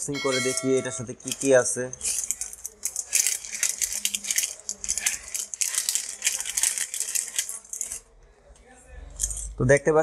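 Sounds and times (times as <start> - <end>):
plastic bag crinkling: 1.2 - 8.1.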